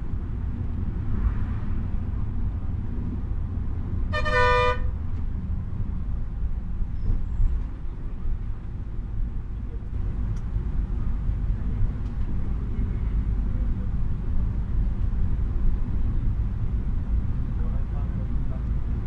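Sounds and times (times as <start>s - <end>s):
bus engine and road rumble: 0.0s - 19.0s
horn blast: 4.1s - 4.9s.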